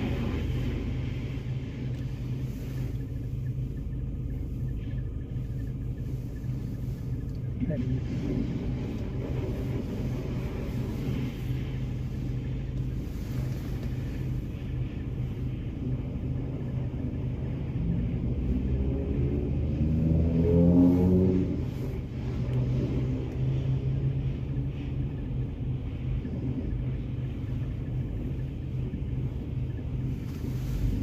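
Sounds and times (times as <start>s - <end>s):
car engine idling: 0.0s - 31.0s
passing vehicle engine: 17.4s - 25.1s.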